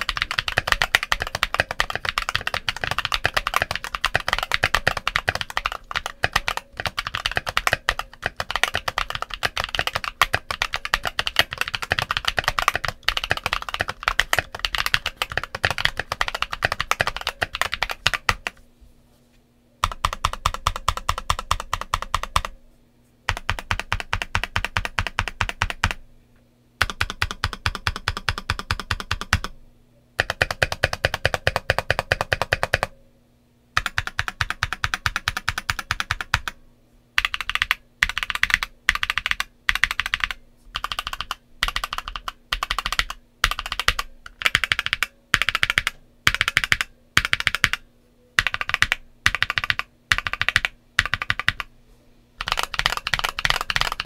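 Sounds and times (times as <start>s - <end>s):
mechanical keyboard typing: 0.0s - 18.6s, 19.8s - 22.6s, 23.3s - 26.0s, 26.8s - 29.6s, 30.2s - 32.9s, 33.8s - 36.6s, 37.2s - 47.8s, 48.4s - 51.7s, 52.4s - 54.0s.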